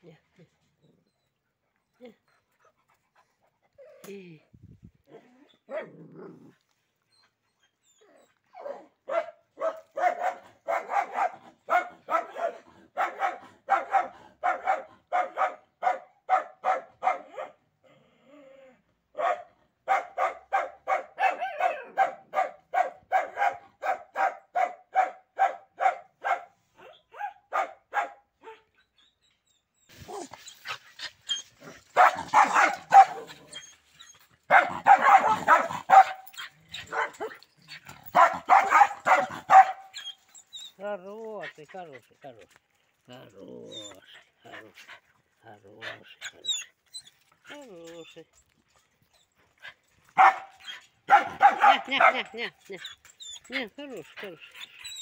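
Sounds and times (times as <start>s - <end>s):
dog barking: 8.6s - 17.6s, 19.2s - 28.6s, 32.0s - 33.4s, 34.5s - 37.4s, 38.1s - 39.9s, 50.2s - 52.4s.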